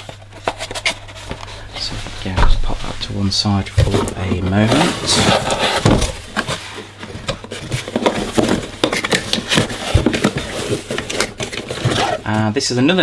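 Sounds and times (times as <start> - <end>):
cardboard scraping and rustling: 0.0 - 12.6
heavy thuds: 1.7 - 5.2.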